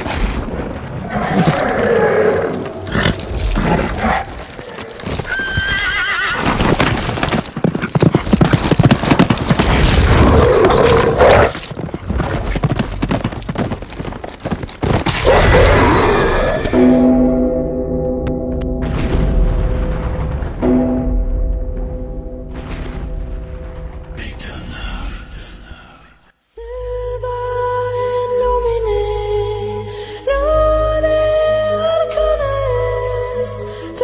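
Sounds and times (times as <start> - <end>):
horses galloping: 0.7 - 15.5
horse whinnying: 1.1 - 11.6, 14.9 - 16.8.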